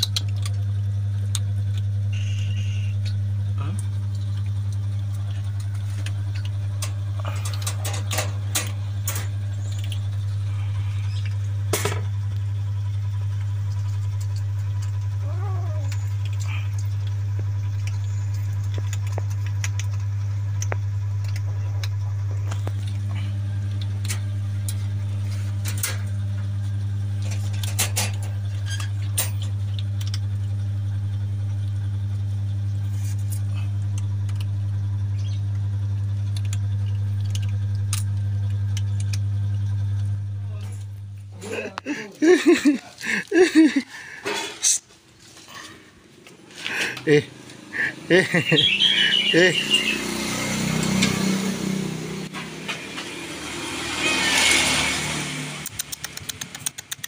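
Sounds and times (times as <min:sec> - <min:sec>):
kittens crunching dry kibble: 0:00.0 - 0:48.0, 0:55.6 - 0:57.0
low hum: 0:00.0 - 0:57.0
kitten mewing: 0:15.1 - 0:16.8.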